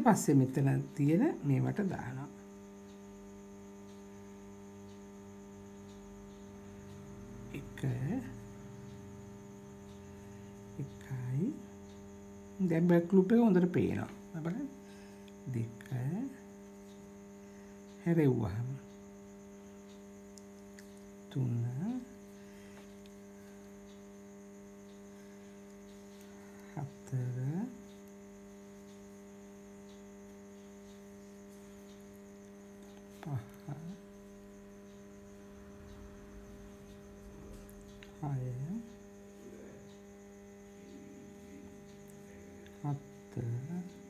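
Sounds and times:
woman speaking softly: 0:00.0 - 0:02.4, 0:07.5 - 0:08.5, 0:10.8 - 0:11.8, 0:12.6 - 0:14.8, 0:15.4 - 0:16.5, 0:18.0 - 0:18.9, 0:21.3 - 0:22.2, 0:26.7 - 0:28.0, 0:33.1 - 0:34.1, 0:38.1 - 0:40.1, 0:40.7 - 0:44.0
electrical mains hum: 0:00.0 - 0:44.0.

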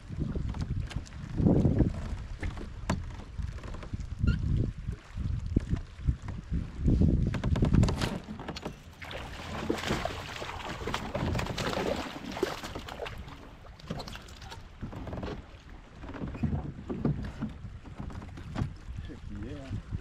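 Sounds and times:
fish thrashing in water: 0:08.0 - 0:14.6.

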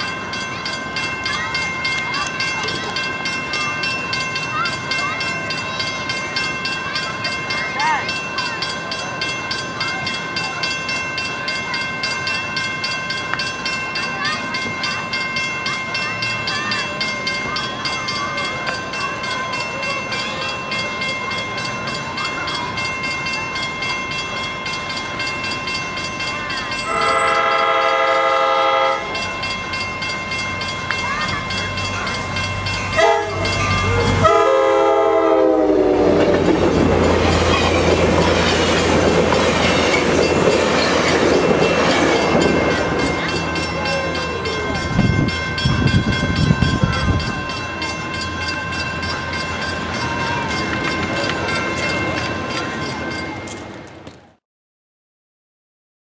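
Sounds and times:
train rushing by: 0:00.0 - 0:54.3
crossing bell ringing: 0:00.0 - 0:54.4
train horn blasts: 0:26.9 - 0:29.2, 0:33.0 - 0:36.2.

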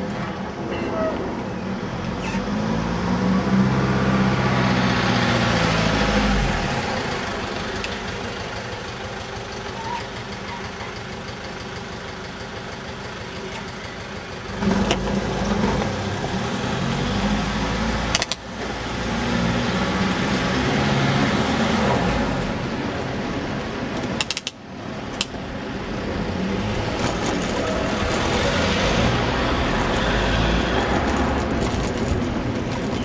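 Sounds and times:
rushing rumbling road noise: 0:00.0 - 0:33.0
van engine running: 0:03.4 - 0:33.0
sharp clicks: 0:24.0 - 0:25.4.

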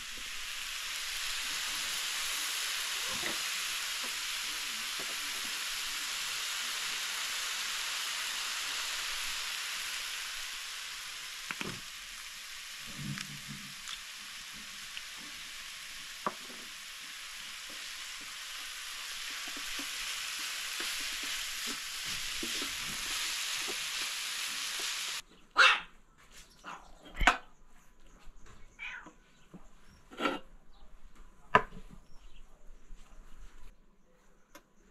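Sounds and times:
meat sizzling in a pan: 0:00.0 - 0:25.2.

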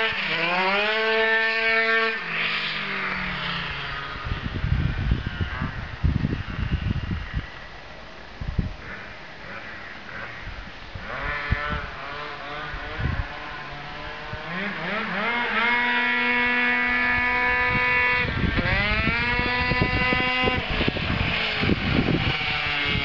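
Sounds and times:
two-stroke scooter engine revving: 0:00.0 - 0:07.5, 0:08.8 - 0:23.0.

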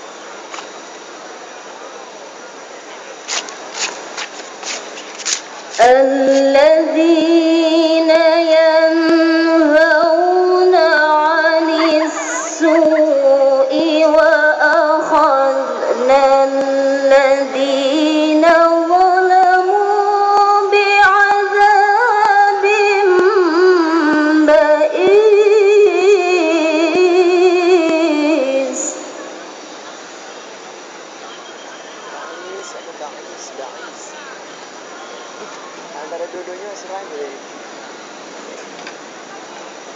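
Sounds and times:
low background hum: 0:00.0 - 0:37.6
woman reciting melodically: 0:05.8 - 0:29.2.

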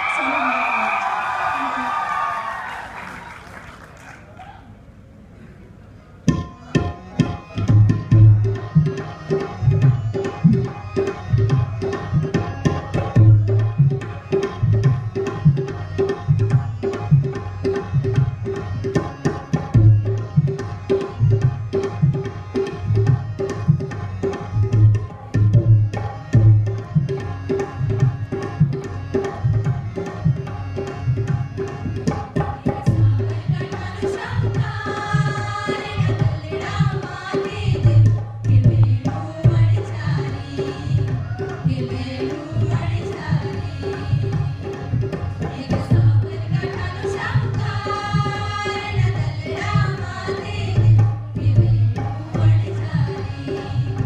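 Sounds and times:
tabla playing fast rhythm: 0:06.3 - 0:54.0
women singing together: 0:32.4 - 0:54.0.

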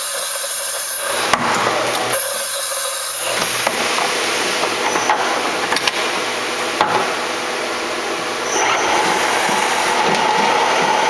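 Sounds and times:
steady machine whine: 0:00.0 - 0:11.0
machine milling metal: 0:08.3 - 0:11.0.

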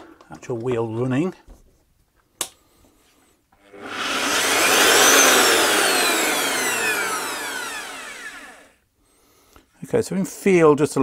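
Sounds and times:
belt sander motor whine: 0:03.6 - 0:08.8.

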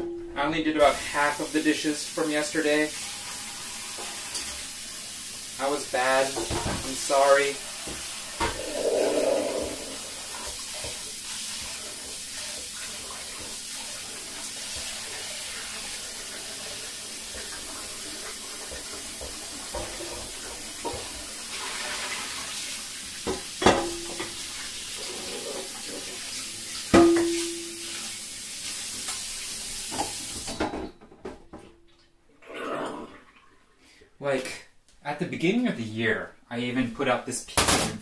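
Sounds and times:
steady hiss: 0:00.8 - 0:11.6
cookware clanking: 0:26.9 - 0:27.9.

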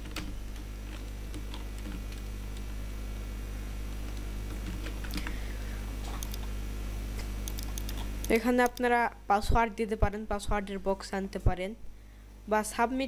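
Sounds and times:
low electrical hum: 0:00.0 - 0:13.0
keyboard and mouse clicks: 0:06.1 - 0:06.5, 0:07.4 - 0:08.9.

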